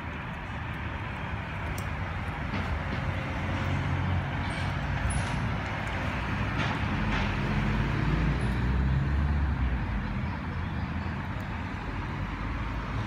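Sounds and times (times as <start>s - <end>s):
street traffic rumble: 0.0s - 13.0s.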